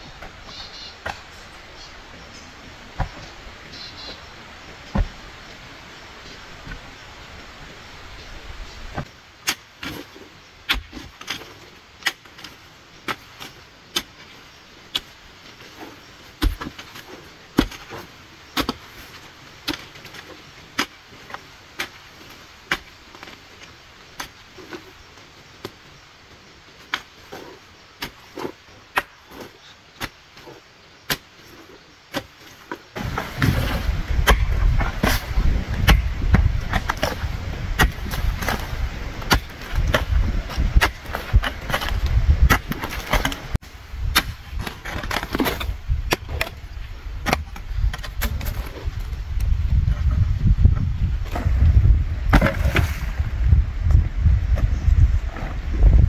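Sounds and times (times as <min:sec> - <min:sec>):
earth scraping: 0:00.0 - 0:56.0
hoe chopping stony soil: 0:04.8 - 0:05.4, 0:09.0 - 0:25.0, 0:26.8 - 0:50.2, 0:51.2 - 0:53.3.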